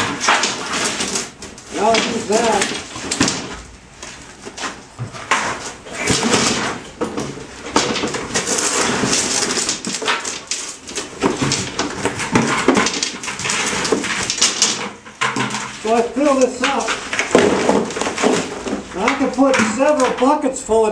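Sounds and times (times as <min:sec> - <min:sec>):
sled dragged scraping and clattering: 0:07.7 - 0:20.5.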